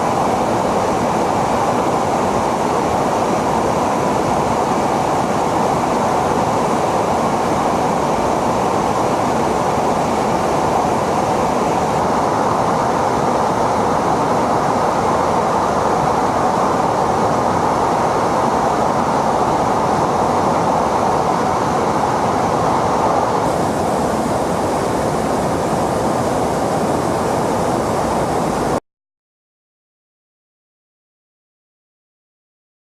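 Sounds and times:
aircraft cabin roar: 21.1 - 28.8.

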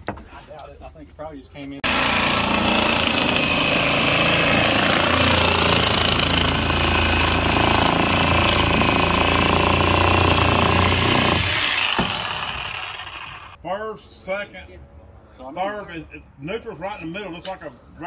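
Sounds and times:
loud engine running with whine: 3.3 - 13.6.

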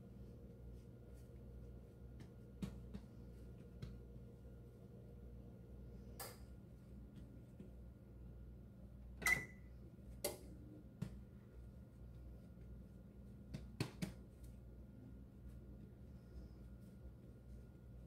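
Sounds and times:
dough being handled by hand: 0.0 - 5.0, 10.0 - 18.0
steady low hum: 0.0 - 18.0.

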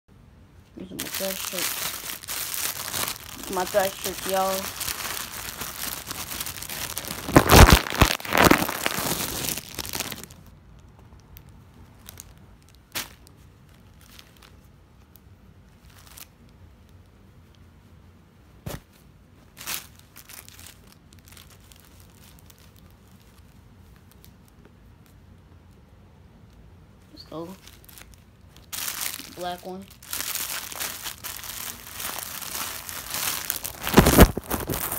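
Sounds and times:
plastic bags crinkling: 0.8 - 10.5, 12.0 - 14.7, 15.8 - 16.3, 19.5 - 24.3, 27.4 - 34.9.

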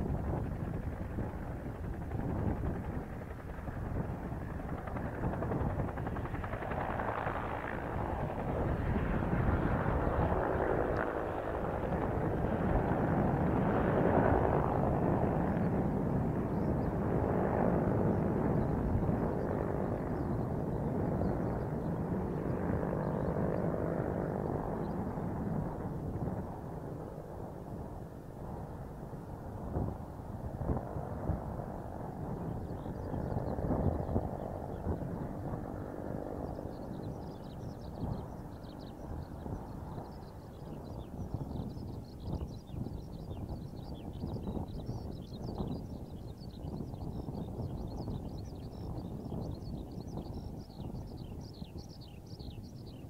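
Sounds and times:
helicopter rotor and engine: 0.0 - 53.0.

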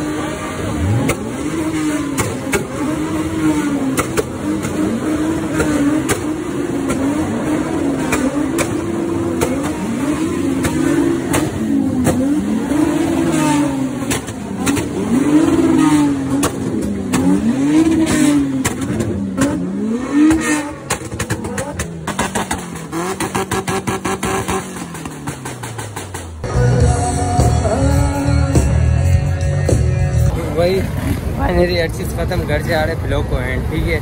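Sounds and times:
car engine revving: 0.0 - 34.0
sharp exhaust pops: 1.0 - 26.4.

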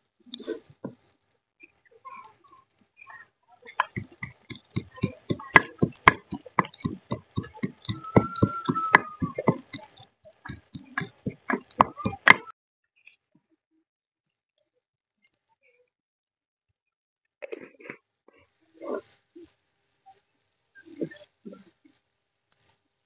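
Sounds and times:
wooden pestle pounding in mortar: 3.8 - 9.9, 10.5 - 12.5.

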